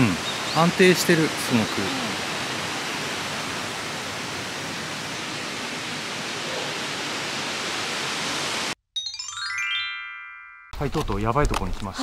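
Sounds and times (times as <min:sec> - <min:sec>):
stream rushing over boulders: 0:00.0 - 0:08.8.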